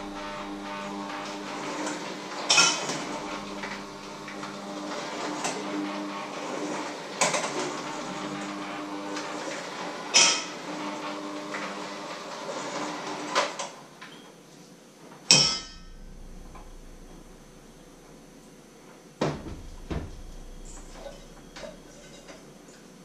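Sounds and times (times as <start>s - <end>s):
electric hand mixer whirring: 0.0s - 13.3s.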